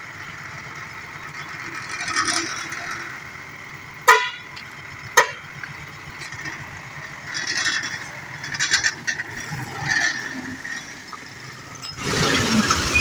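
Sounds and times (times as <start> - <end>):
diesel engine idling: 0.0 - 13.0
truck horn toots: 4.0 - 5.6.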